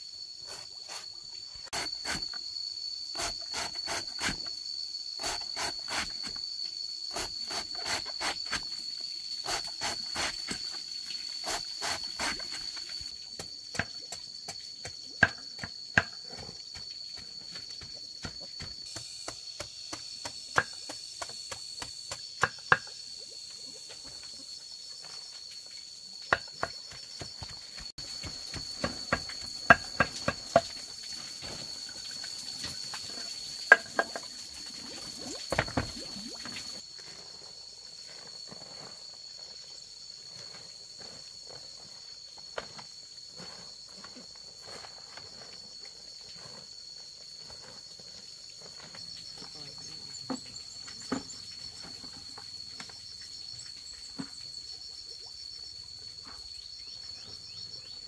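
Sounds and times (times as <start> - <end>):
high-pitched insect drone: 0.0 - 44.8.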